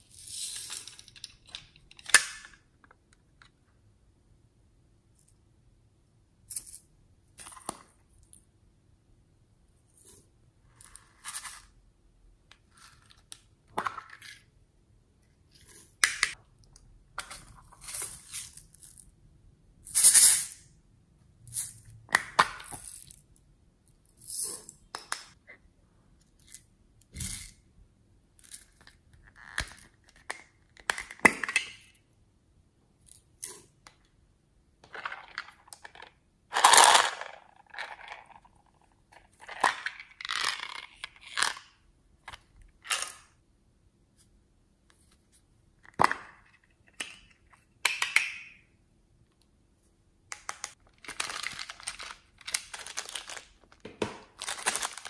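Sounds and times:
beads being tipped out: 0:34.8 - 0:38.4.

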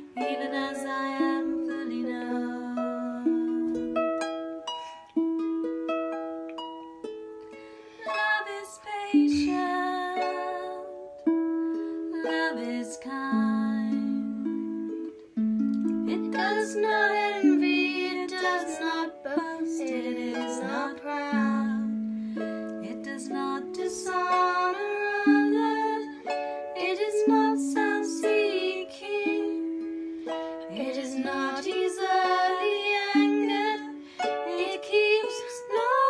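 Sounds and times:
harp plucked: 0:00.0 - 0:36.0
voices singing slow melody: 0:15.7 - 0:36.0.

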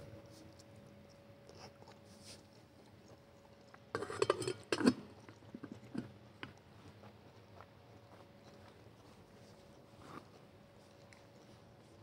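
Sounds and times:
faint steady hum: 0:00.0 - 0:12.0
tableware clinking and clattering: 0:04.0 - 0:05.0.

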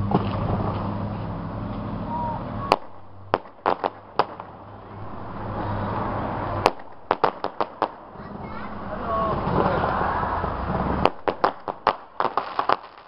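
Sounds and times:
low hum: 0:00.0 - 0:12.2
fireworks bangs: 0:02.6 - 0:13.0
fireworks pops: 0:02.7 - 0:04.6, 0:06.6 - 0:08.4, 0:10.9 - 0:13.0.

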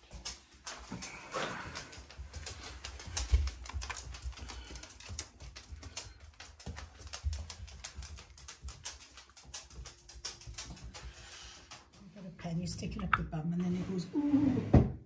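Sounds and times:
rapid light clicks and taps: 0:00.0 - 0:12.0.

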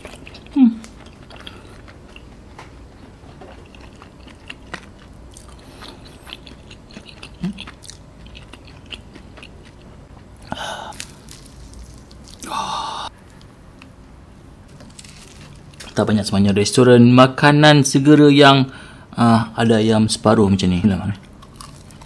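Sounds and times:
person chewing: 0:00.0 - 0:13.9, 0:21.2 - 0:22.0
fried chicken crunching: 0:03.4 - 0:09.8, 0:10.4 - 0:13.5, 0:14.7 - 0:16.0, 0:21.4 - 0:22.0.

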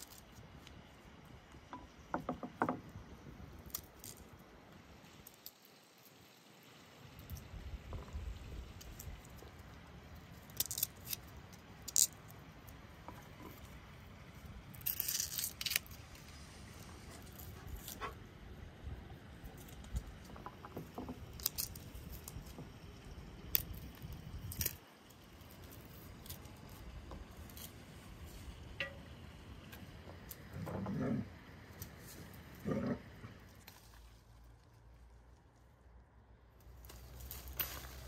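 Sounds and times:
garlic skins crackling: 0:00.0 - 0:02.0, 0:03.1 - 0:06.4, 0:08.1 - 0:18.2, 0:19.2 - 0:30.6, 0:36.6 - 0:38.0.

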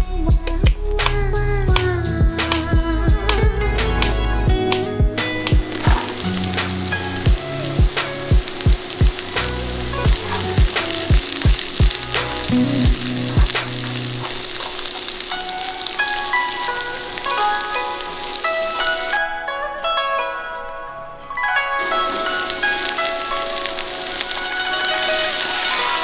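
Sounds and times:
background music with thumping beat: 0:00.0 - 0:14.0
light plucked melody: 0:00.0 - 0:26.0
vegetables sizzling in hot oil: 0:05.2 - 0:19.2, 0:21.8 - 0:26.0.

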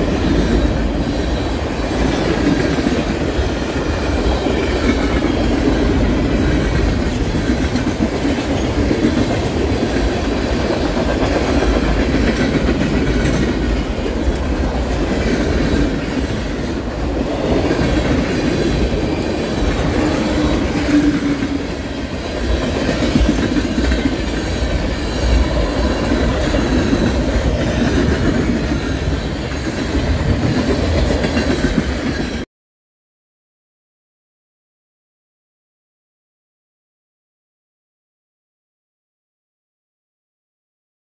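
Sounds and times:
steel wheels rolling on rail: 0:00.0 - 0:32.4
brief tone: 0:20.0 - 0:21.1.

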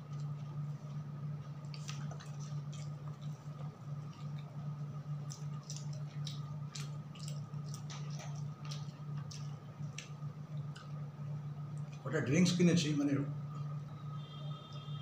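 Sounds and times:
person chewing: 0:00.0 - 0:12.0.

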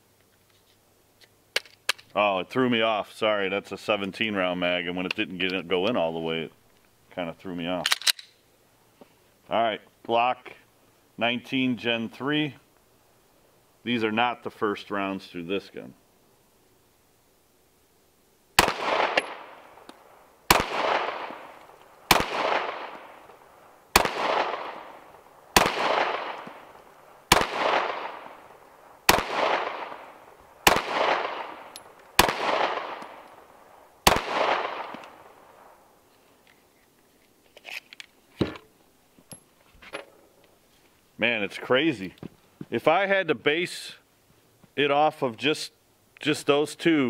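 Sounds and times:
pistol shots with echo: 0:18.6 - 0:19.7, 0:20.5 - 0:23.3, 0:23.9 - 0:26.7, 0:27.3 - 0:28.4, 0:29.1 - 0:33.3, 0:34.0 - 0:35.2.

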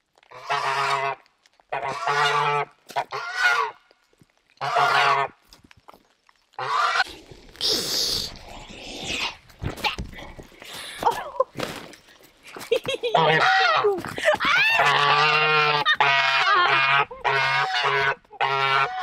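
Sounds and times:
goose honking: 0:00.3 - 0:03.8, 0:04.6 - 0:05.4, 0:06.6 - 0:07.0, 0:13.2 - 0:13.9, 0:14.7 - 0:19.0
rustling and scuffling: 0:09.2 - 0:15.1.

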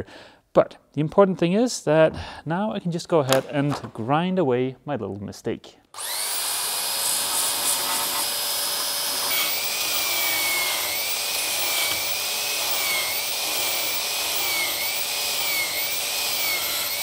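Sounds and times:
belt sander grinding: 0:06.0 - 0:17.0
motor whine: 0:06.0 - 0:17.0.

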